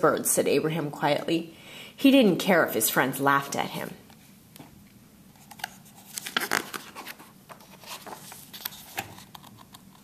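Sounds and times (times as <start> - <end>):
book pages turning: 5.4 - 10.0
paper rustles and soft taps: 5.4 - 10.0.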